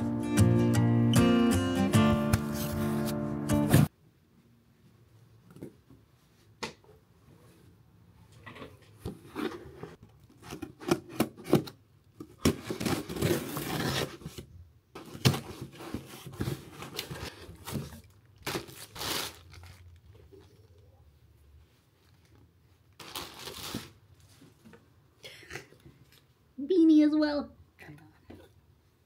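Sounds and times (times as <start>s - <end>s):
plastic bag crinkling: 17.6s - 20.6s, 23.0s - 24.0s.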